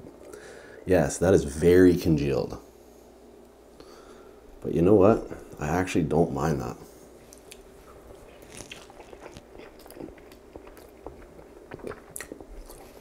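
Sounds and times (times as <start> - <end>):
close chewing of rice: 7.3 - 13.0
wet mouth clicks and smacks: 8.4 - 13.0.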